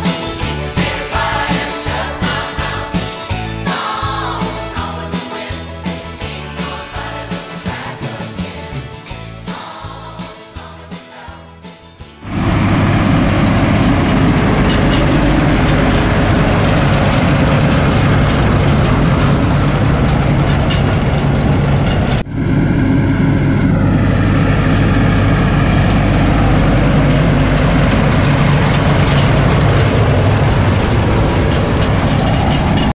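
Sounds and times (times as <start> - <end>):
tractor diesel engine running: 0.0 - 10.3, 11.5 - 32.9
baler machinery working: 12.2 - 32.9.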